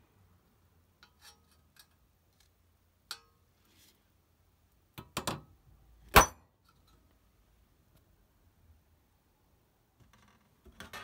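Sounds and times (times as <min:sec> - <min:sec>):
hammer striking steel punch: 0:06.2 - 0:06.4.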